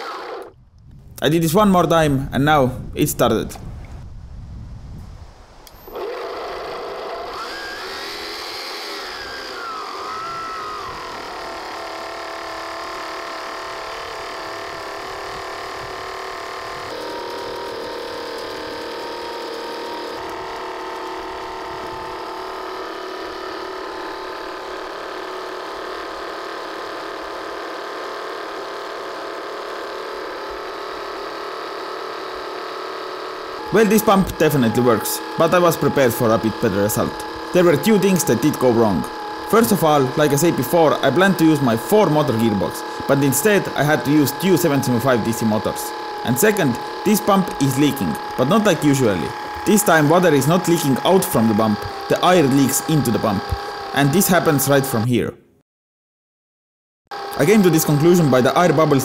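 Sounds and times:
electric motors whining: 0:00.0 - 0:00.8, 0:05.6 - 0:55.1, 0:57.1 - 0:59.0
plastic gear noise: 0:05.7 - 0:55.1, 0:57.1 - 0:59.0.

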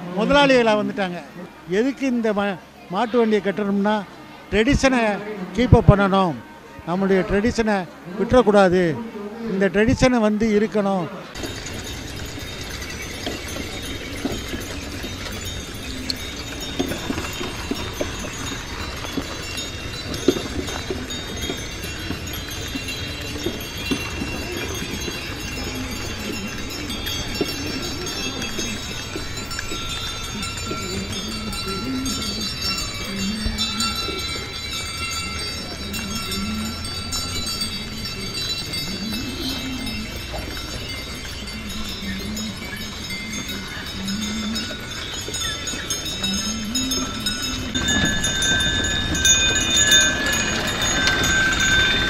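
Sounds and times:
bells jingling: 0:11.3 - 0:52.0
cart wheels rumbling on road: 0:11.4 - 0:52.0
hooves clopping: 0:11.4 - 0:52.0.

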